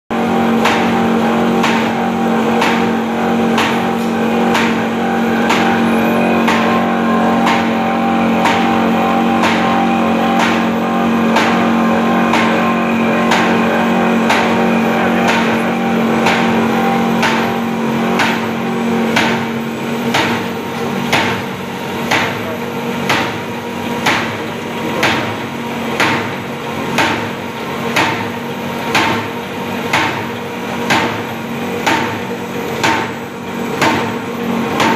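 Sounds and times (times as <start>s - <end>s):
cardboard cutting machine hum: 0.1s - 34.9s
regular cutter knocks: 1.6s - 23.4s.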